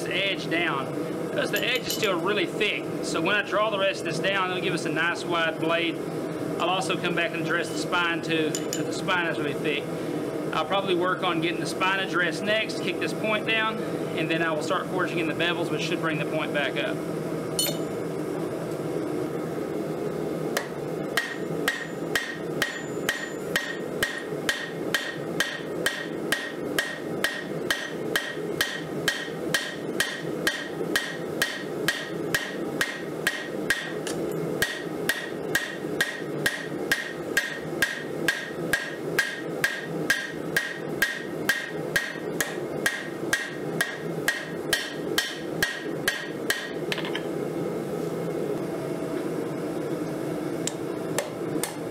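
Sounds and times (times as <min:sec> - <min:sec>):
hammer striking metal on anvil: 0:01.6 - 0:02.1, 0:08.5 - 0:08.9, 0:17.6 - 0:17.9, 0:20.6 - 0:47.2.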